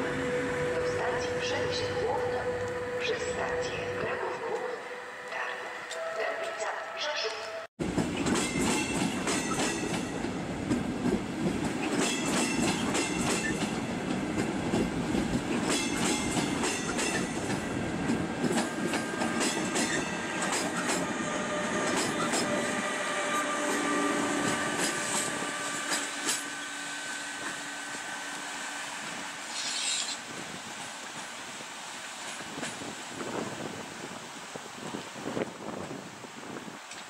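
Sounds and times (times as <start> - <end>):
electric locomotive whining: 0.0 - 32.0
train wheels clicking over rail joints: 7.8 - 21.1, 24.4 - 26.7.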